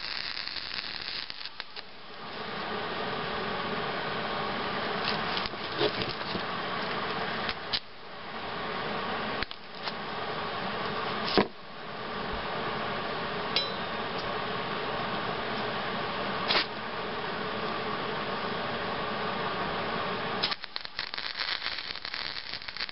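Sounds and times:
welder arc hissing: 0.0 - 2.7, 20.3 - 22.9.

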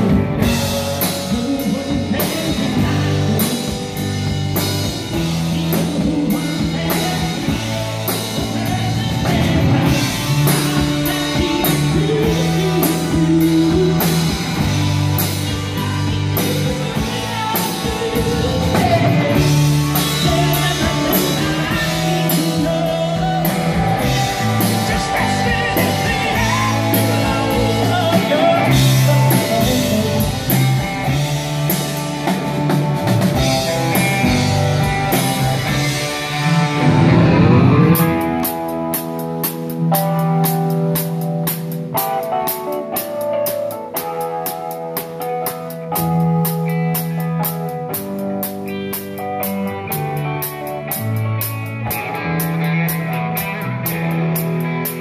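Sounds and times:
male lead vocal: 0.0 - 31.2
rock band playing live: 0.0 - 55.0.

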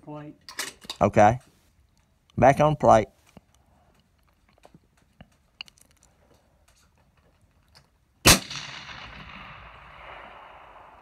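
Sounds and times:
rifle shot with rolling echo: 8.2 - 11.0.

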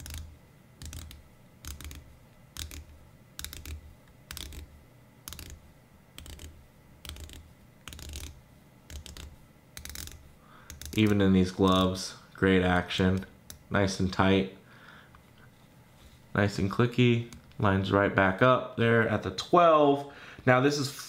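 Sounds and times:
watch bezel ratchet clicks: 0.0 - 2.0, 2.6 - 4.6, 5.3 - 5.6, 6.2 - 11.9.

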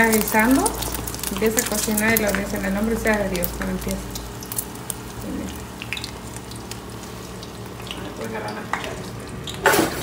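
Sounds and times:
eggs sizzling in oil: 0.0 - 10.0.

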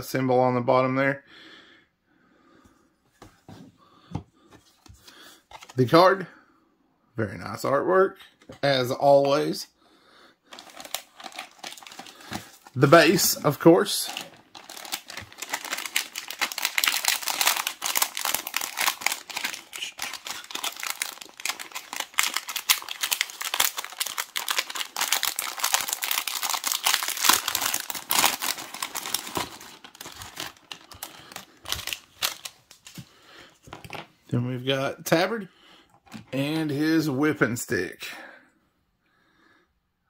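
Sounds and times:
plastic bag crinkling: 10.5 - 33.1.

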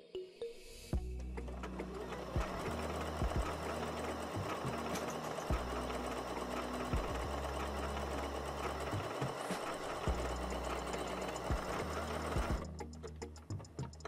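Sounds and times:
sewing machine needle clatter: 1.6 - 12.7.

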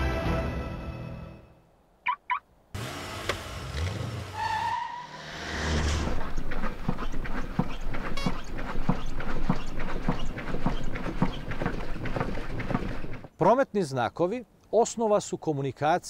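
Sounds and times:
car engine running low: 5.4 - 13.3.

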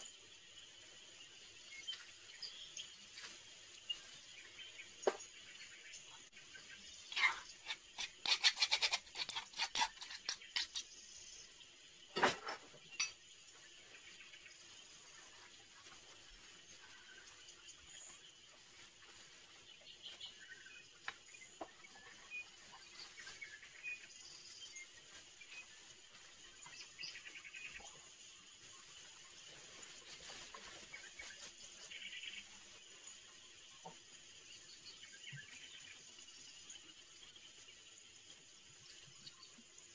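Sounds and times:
insects chirping: 0.0 - 39.9
metal spoon scraping a bowl: 7.1 - 10.9.

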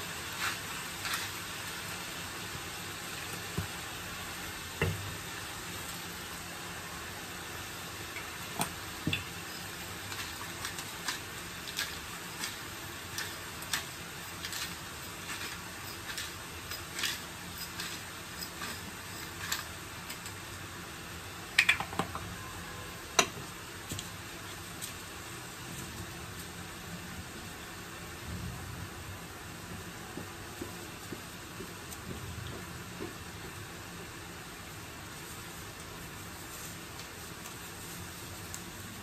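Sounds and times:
food sizzling in a pan: 0.0 - 28.2, 29.0 - 39.0
pepper mill clicking: 8.6 - 20.4.

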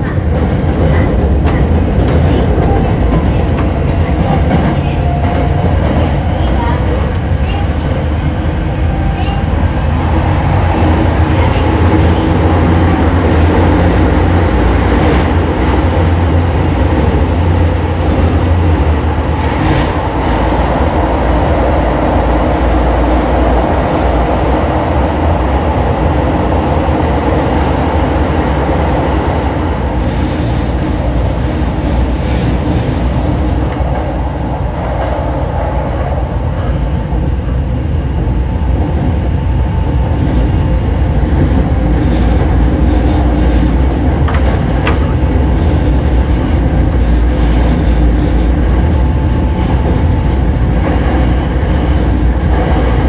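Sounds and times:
train wheels rumbling on rails: 0.0 - 53.0.

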